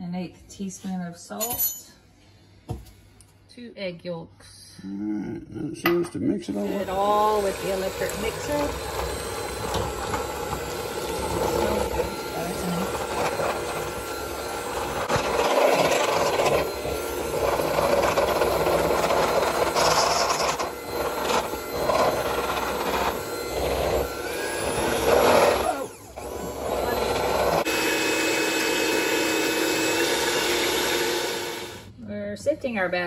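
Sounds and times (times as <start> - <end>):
electric hand mixer whisking: 6.4 - 31.9
beaters rubbing metal bowl: 6.6 - 31.3.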